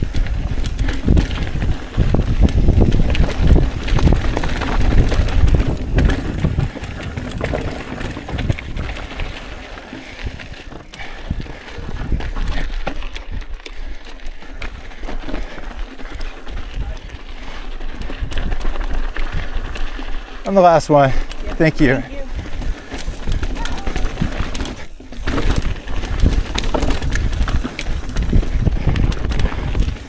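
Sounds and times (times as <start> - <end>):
bike rattling over rocks: 0.0 - 30.0
bike tyre noise on dirt: 0.0 - 30.0.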